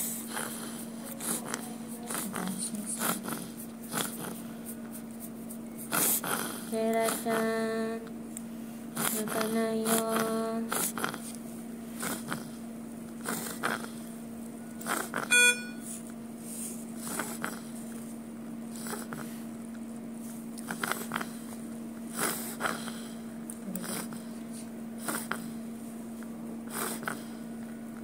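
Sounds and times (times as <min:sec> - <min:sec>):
steady hum: 0:00.0 - 0:28.0
short electronic beep: 0:15.3 - 0:15.8.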